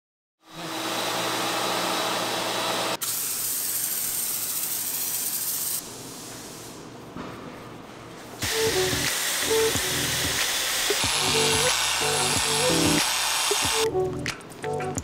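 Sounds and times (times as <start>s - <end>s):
foam sprayer hissing: 3.0s - 5.8s, 8.4s - 13.9s
loud steady hiss: 8.4s - 13.9s.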